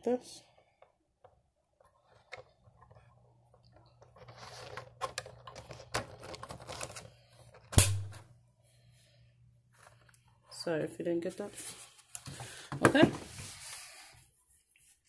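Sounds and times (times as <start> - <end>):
plastic scraping: 1.8 - 7.6.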